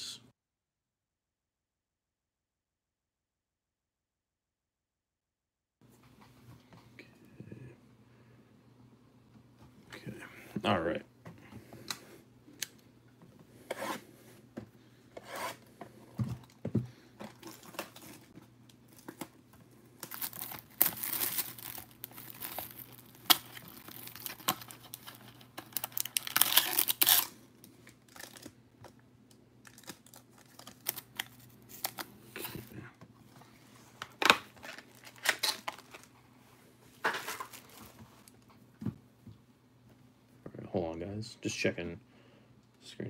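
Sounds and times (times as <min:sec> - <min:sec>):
card pack wrappers tearing: 0:20.0 - 0:27.4, 0:28.0 - 0:28.6, 0:29.6 - 0:32.1, 0:34.2 - 0:36.1
packaging crinkling: 0:20.0 - 0:28.6, 0:29.6 - 0:32.1, 0:34.1 - 0:36.2.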